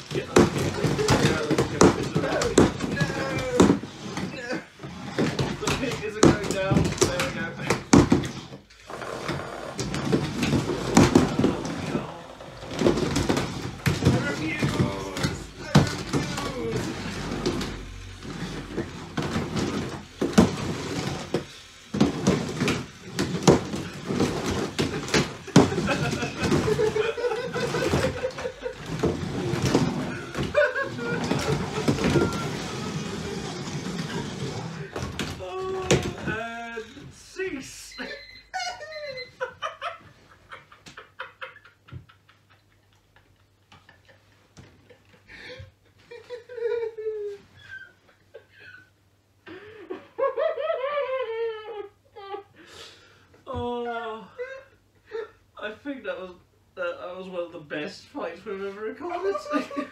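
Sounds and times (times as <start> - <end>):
people laughing hysterically: 25.3 - 29.4, 30.0 - 33.8, 38.1 - 52.5, 59.2 - 59.9.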